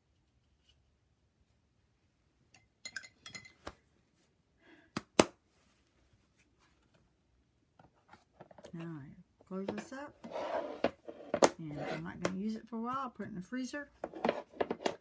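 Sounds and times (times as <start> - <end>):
clinks of paint tools: 2.5 - 3.6.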